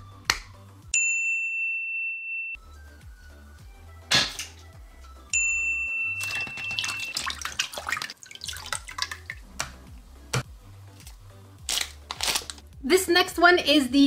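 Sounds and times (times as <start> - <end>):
high ringing tone: 1.0 - 2.7, 5.3 - 7.3
background music with beat: 2.6 - 5.4, 9.4 - 13.0
object splashing into water: 6.2 - 9.4
water sloshing and dripping: 6.2 - 9.8.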